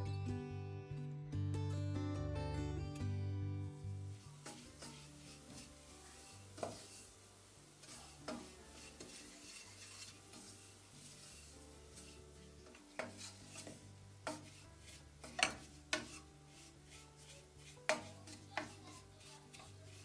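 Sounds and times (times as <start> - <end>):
wooden spoon scraping a pot: 3.9 - 20.0.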